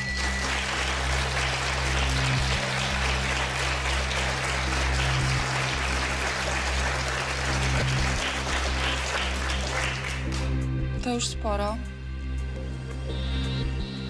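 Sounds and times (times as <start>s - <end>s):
audience applauding: 0.0s - 10.7s
low droning music: 0.0s - 14.0s.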